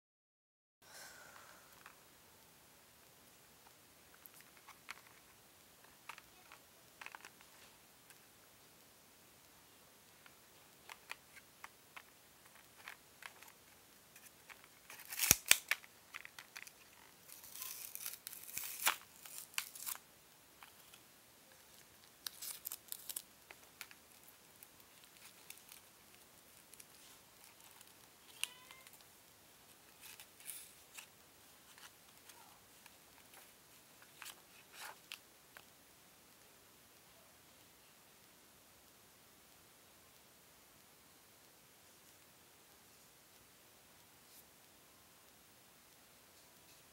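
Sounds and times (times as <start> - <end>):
plastic packaging clicking and crinkling: 3.6 - 8.2, 10.2 - 20.0, 21.6 - 29.1, 29.8 - 35.7
plastic tearing and crackling: 6.1 - 7.6, 10.8 - 20.0, 21.7 - 29.1, 29.9 - 35.7.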